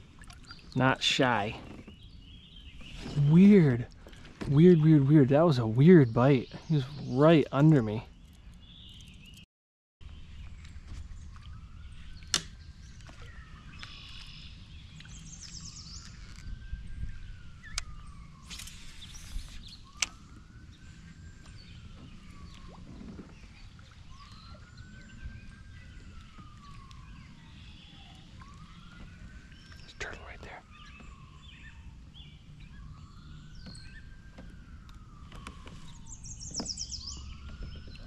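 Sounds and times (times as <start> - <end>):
faint siren wailing: 0.0 - 8.2, 10.6 - 38.0
short bird chirps: 17.6 - 20.2.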